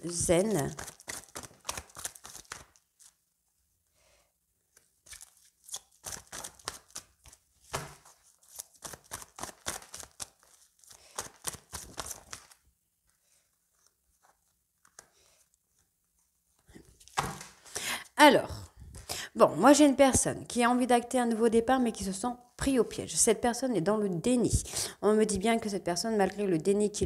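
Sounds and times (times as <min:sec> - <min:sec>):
cards being shuffled: 0:00.6 - 0:03.2, 0:04.7 - 0:12.6, 0:13.7 - 0:15.9.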